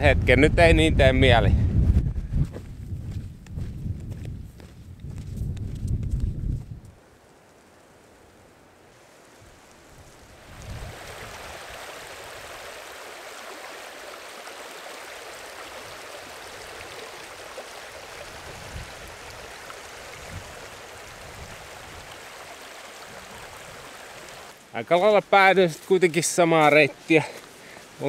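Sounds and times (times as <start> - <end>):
short low thumps: 1.4 - 6.9
stream flowing over rocks: 8.6 - 25.2.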